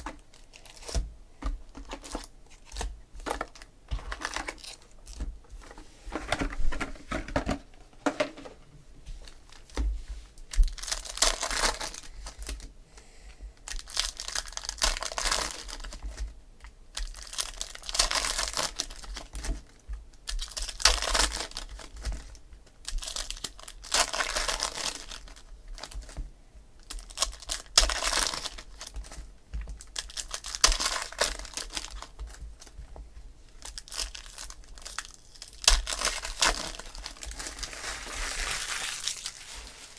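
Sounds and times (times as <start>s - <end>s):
foil wrappers crinkling and tearing: 0.0s - 1.0s, 1.7s - 5.2s, 10.5s - 12.7s, 13.6s - 16.3s, 16.9s - 26.2s, 26.8s - 32.8s, 33.5s - 39.9s.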